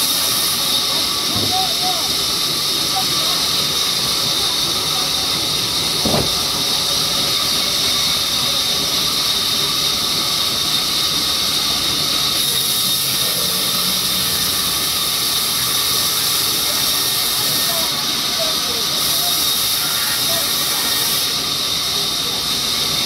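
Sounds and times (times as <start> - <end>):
short thump: 6.0 - 6.6.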